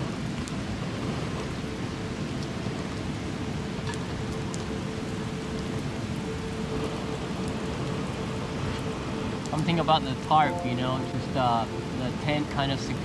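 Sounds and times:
rain falling on a tarp: 0.0s - 13.0s.

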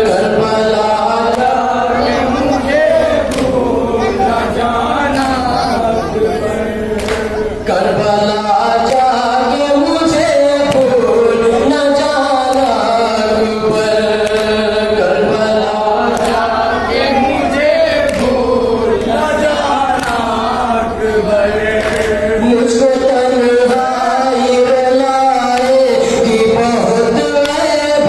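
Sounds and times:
man chanting a lament: 0.0s - 28.0s
chest-beating slaps: 3.3s - 3.6s, 7.0s - 7.3s, 10.7s - 11.0s.

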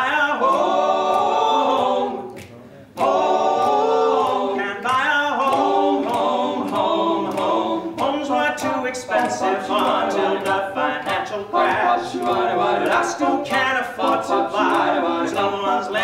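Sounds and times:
men singing close harmony: 0.0s - 2.4s, 3.0s - 16.0s.

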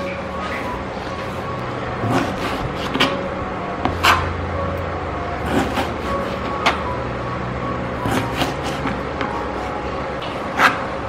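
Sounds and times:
steady low hum: 0.0s - 11.0s
knife cutting on plastic board: 2.0s - 3.2s, 5.4s - 6.8s, 8.0s - 9.7s.

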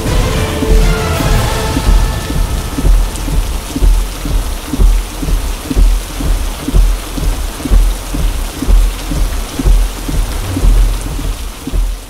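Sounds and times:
heavy rain on windshield: 0.0s - 12.0s
low thump: 9.6s - 12.0s.

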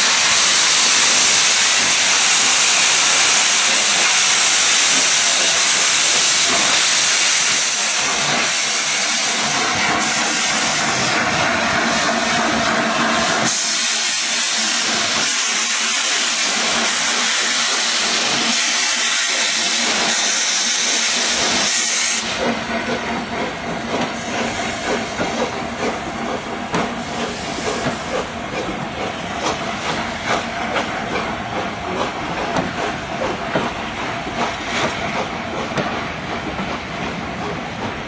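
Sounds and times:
steam hissing loudly: 0.0s - 36.1s
train wheels clattering over rail joints: 19.3s - 38.0s.

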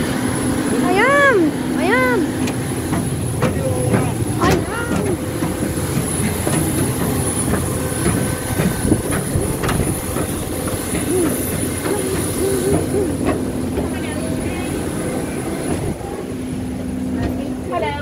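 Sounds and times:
aircraft and ground equipment rumble: 0.0s - 18.0s
footsteps on metal stairs: 2.2s - 14.6s.

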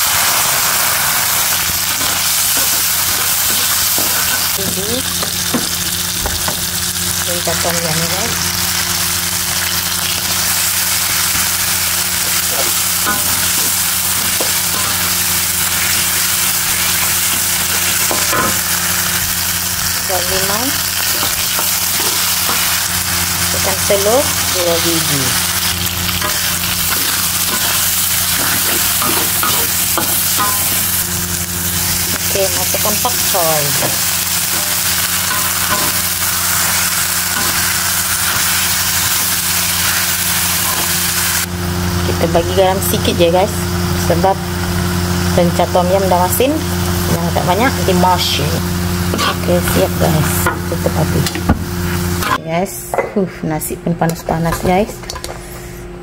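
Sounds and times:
frying sizzle: 0.0s - 52.4s
spatula scraping a pan: 49.1s - 49.5s.

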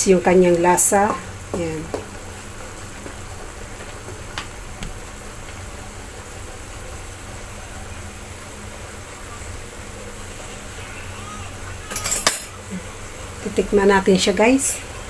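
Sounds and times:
stove hum and hiss: 0.0s - 15.0s
wooden spatula knocking on wok: 1.0s - 2.2s.

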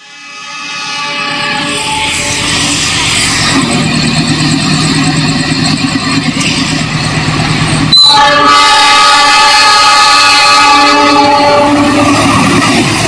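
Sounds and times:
locomotive horn: 0.0s - 2.6s, 7.9s - 12.6s
diesel locomotive engine drone: 0.0s - 13.0s.

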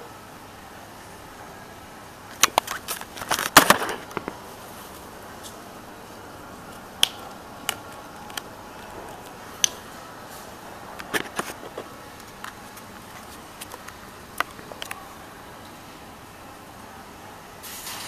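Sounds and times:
fingers tapping phone: 6.7s - 9.8s, 10.9s - 15.0s
steady hiss: 17.5s - 18.0s.

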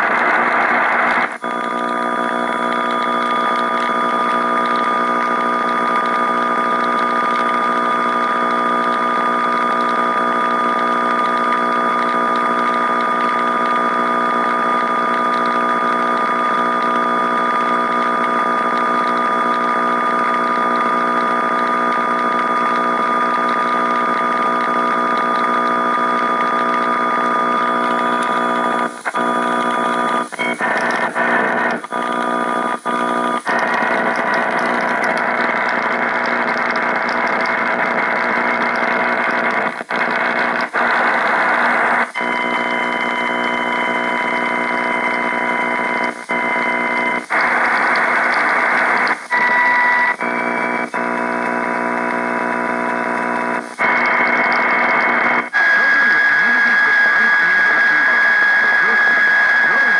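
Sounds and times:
radio buzzing: 0.0s - 59.9s.

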